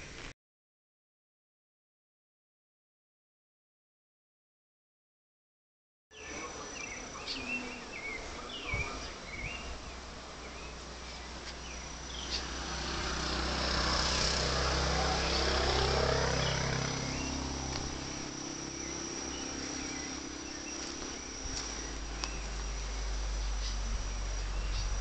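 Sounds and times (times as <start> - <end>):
high-pitched insect drone: 6.2 - 25.0
motor vehicle passing: 9.7 - 25.0.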